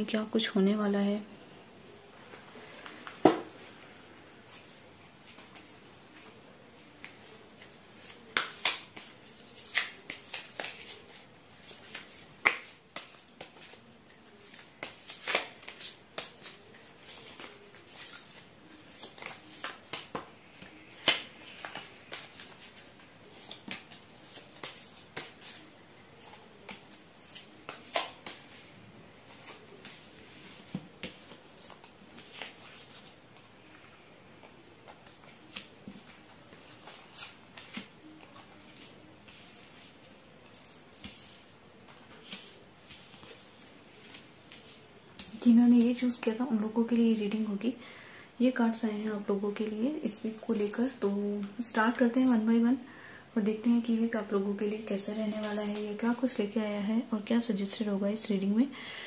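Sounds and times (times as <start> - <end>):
cards being shuffled: 6.7 - 33.2, 34.4 - 46.0.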